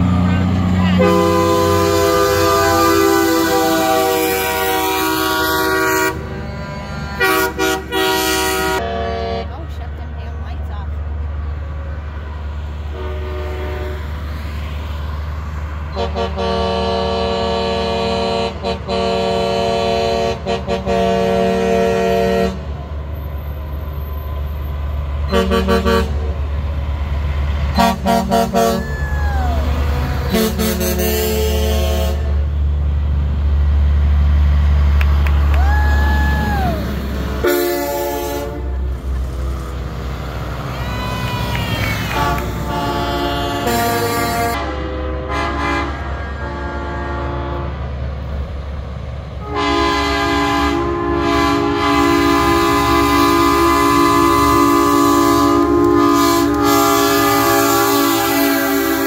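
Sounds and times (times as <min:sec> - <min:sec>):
diesel truck engines rumbling: 0:00.0 - 0:59.0
truck air horns blowing: 0:00.9 - 0:09.6, 0:12.9 - 0:14.3, 0:15.9 - 0:22.8, 0:25.2 - 0:26.6, 0:27.6 - 0:32.6, 0:36.2 - 0:39.7, 0:40.6 - 0:48.0, 0:49.4 - 0:59.0.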